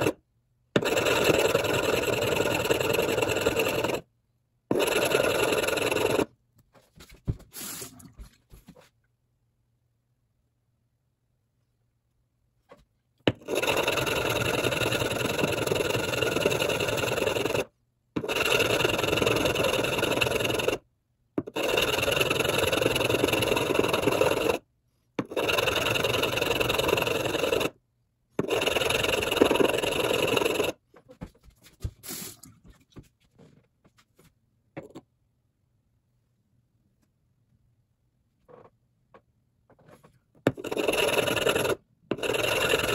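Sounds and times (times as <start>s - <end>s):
metal scraping on sharpening stone: 40.5s - 42.9s.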